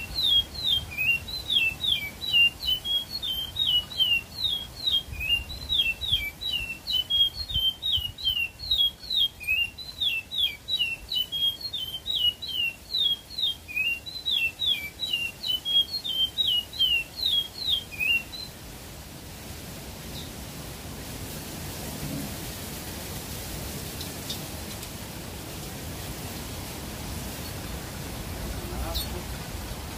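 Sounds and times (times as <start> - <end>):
songbird singing: 0.0 - 18.7, 20.0 - 20.4, 23.9 - 25.2, 26.3 - 29.9
steady hiss: 0.0 - 29.9.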